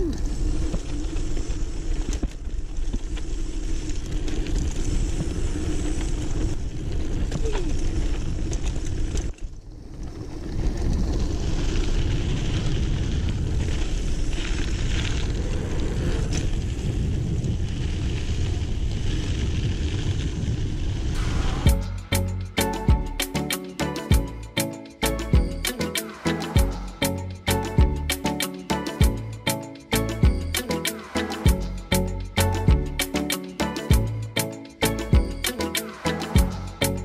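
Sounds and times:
bike tyres rumbling on dirt: 0.0s - 21.8s
wind on microphone: 3.7s - 22.0s.

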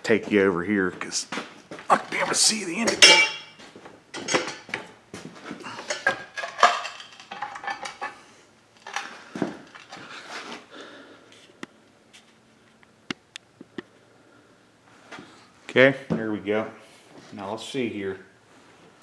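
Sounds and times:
metal tools clinking and clattering: 2.7s - 3.6s, 4.2s - 4.8s, 5.7s - 8.2s.

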